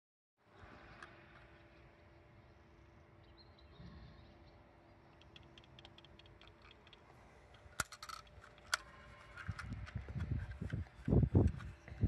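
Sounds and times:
sharp clicks: 5.1s - 11.6s
grenade parts rattling: 5.2s - 11.8s.

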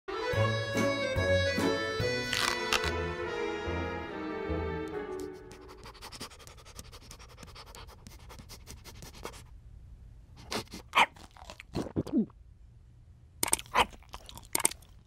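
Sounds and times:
cartoon dog panting: 5.2s - 9.5s, 10.4s - 11.1s.

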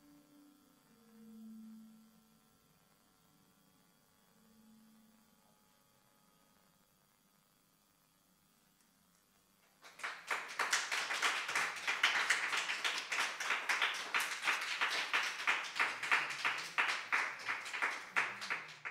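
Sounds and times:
audience applause: 9.8s - 18.9s.

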